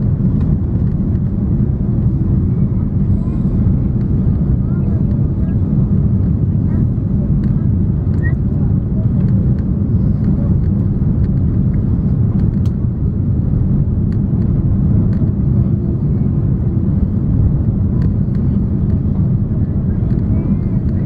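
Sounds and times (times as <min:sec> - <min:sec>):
airflow: 0:00.0 - 0:12.2
jet engine rumble: 0:00.0 - 0:21.0.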